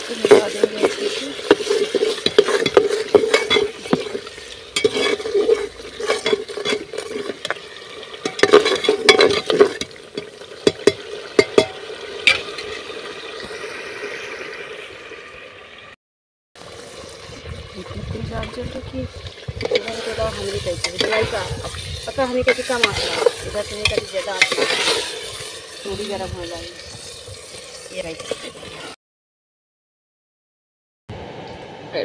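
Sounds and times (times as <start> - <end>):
spoon scraping metal pot: 0.0 - 12.8, 18.2 - 29.0
food sizzling: 0.0 - 16.0, 16.6 - 29.0.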